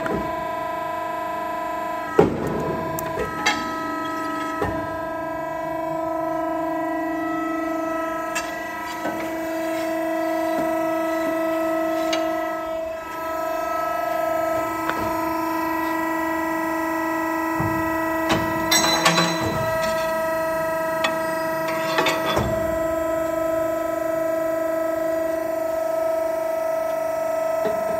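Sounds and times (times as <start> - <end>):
hydraulic machine motor whine: 0.0 - 27.9
metal clanks: 8.2 - 12.7, 17.6 - 23.0.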